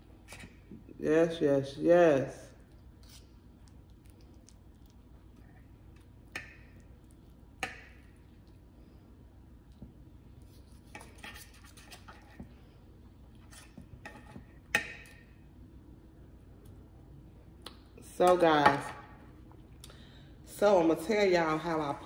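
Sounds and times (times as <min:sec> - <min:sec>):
cutlery scraping on a plate: 0:10.8 - 0:12.5, 0:13.4 - 0:15.2.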